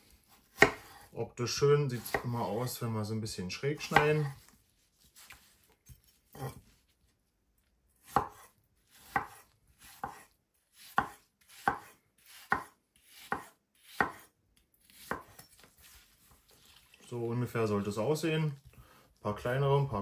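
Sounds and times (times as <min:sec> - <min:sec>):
knife cutting on cutting board: 0:00.2 - 0:01.1, 0:08.0 - 0:16.9.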